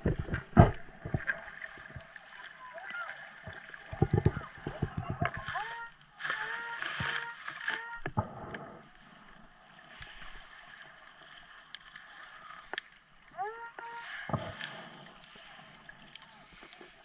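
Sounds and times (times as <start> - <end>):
water sloshing and bubbling: 0.0 - 17.0
faint clicks: 11.6 - 13.0.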